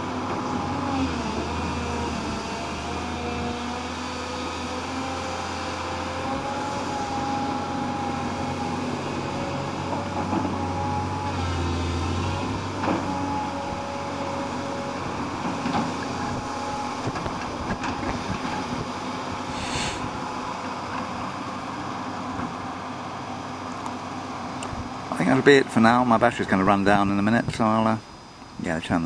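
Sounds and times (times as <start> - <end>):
excavator diesel engine running: 0.0 - 29.0
knocks of excavator digging: 5.9 - 19.5.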